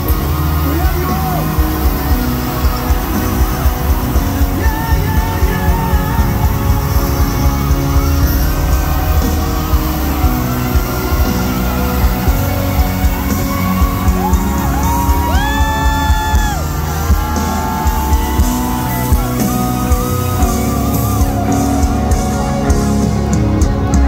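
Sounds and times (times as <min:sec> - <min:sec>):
steady music beat: 0:00.0 - 0:23.0
crowd shouting: 0:00.0 - 0:24.0
sung vocals: 0:04.2 - 0:12.7.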